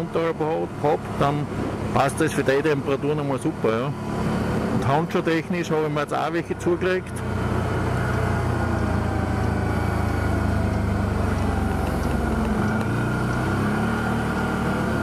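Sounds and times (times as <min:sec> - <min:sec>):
atv engine running: 0:00.0 - 0:15.0.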